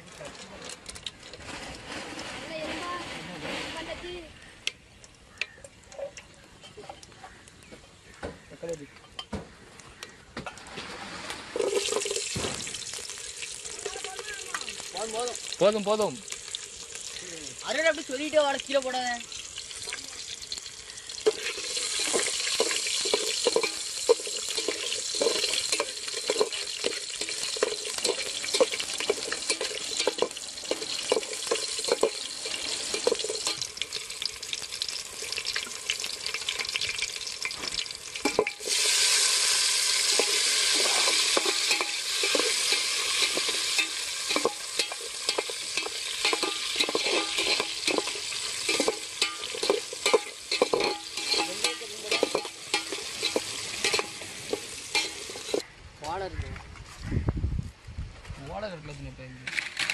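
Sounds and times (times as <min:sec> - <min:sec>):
metal ladle scraping a pot: 0:10.5 - 0:14.1, 0:21.0 - 0:34.0, 0:38.2 - 0:55.7
food sizzling in hot oil: 0:10.6 - 0:55.7.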